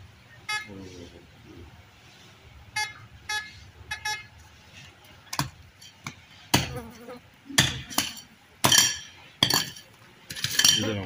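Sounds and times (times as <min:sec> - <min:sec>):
pickaxe striking hard dirt: 0:06.5 - 0:06.8.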